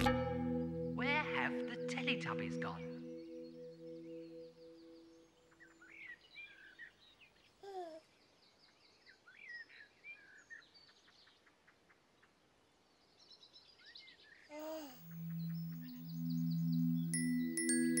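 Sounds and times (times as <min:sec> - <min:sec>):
low sustained musical note: 0:00.0 - 0:05.5, 0:15.0 - 0:18.0
birds chirping and singing: 0:00.0 - 0:07.0, 0:15.0 - 0:18.0
baby cooing: 0:07.6 - 0:08.0, 0:14.5 - 0:15.0.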